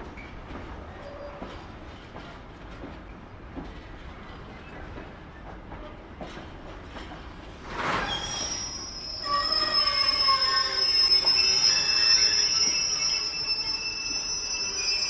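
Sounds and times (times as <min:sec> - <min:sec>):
train wheels clicking over rail joints: 0:00.0 - 0:08.6
steel wheels squealing on rails: 0:00.1 - 0:02.4, 0:03.8 - 0:15.0.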